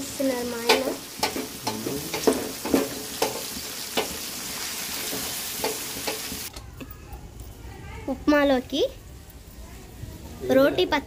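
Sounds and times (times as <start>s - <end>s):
food sizzling in hot oil: 0.0s - 6.5s.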